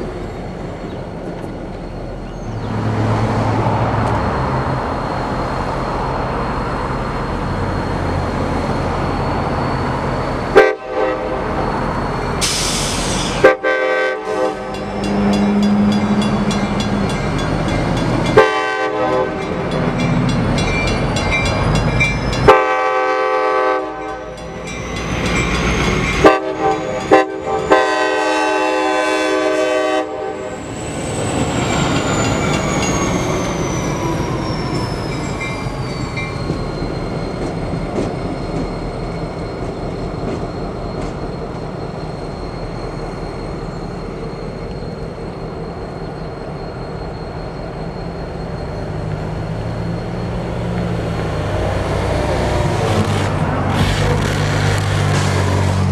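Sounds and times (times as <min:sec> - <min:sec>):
diesel locomotive rumbling: 0:00.0 - 0:55.9
locomotive air horn blasts: 0:10.6 - 0:11.6, 0:13.4 - 0:14.8, 0:18.4 - 0:19.5, 0:22.5 - 0:24.3, 0:26.2 - 0:30.5
crossing bell ringing: 0:14.4 - 0:23.0, 0:23.8 - 0:28.2, 0:31.7 - 0:37.6.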